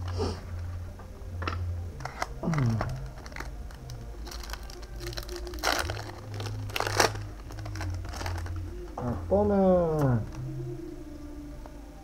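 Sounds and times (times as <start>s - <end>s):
foil wrapper crinkling: 2.0s - 8.9s.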